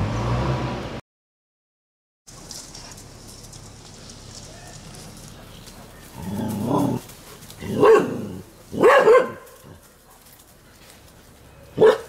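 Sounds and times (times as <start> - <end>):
dogs barking: 4.0 - 12.0.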